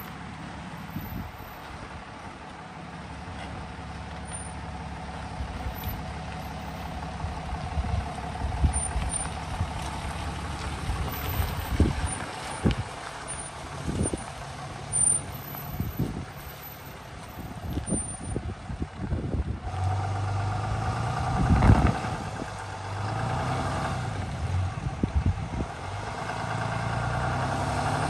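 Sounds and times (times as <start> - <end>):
truck engine running low: 0.0 - 28.0.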